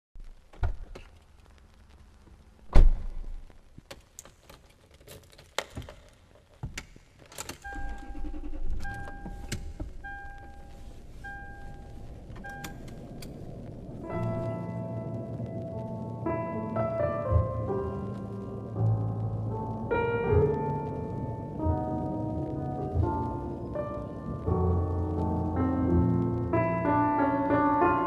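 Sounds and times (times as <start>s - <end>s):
car engine rumble: 7.6s - 16.4s
warning chime beeping: 7.7s - 12.8s
piano music: 8.4s - 28.0s.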